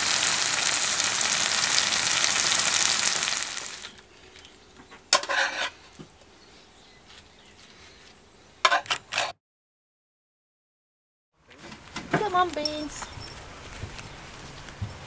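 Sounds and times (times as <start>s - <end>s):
mushrooms sizzling in frying pan: 0.0s - 4.0s
metal spatula scraping pan: 5.2s - 5.8s.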